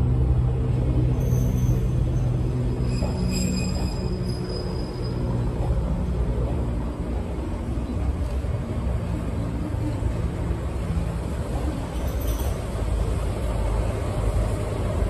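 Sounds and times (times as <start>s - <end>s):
diesel locomotive engine rumble: 0.0s - 15.0s
train coaches rolling past: 0.0s - 15.0s.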